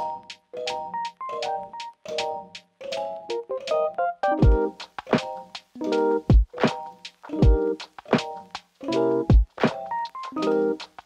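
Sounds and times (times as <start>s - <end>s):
electric piano chords: 0.0s - 11.0s
kick drum and snare beat: 4.4s - 5.3s, 6.3s - 6.8s, 7.4s - 8.3s, 9.3s - 9.8s.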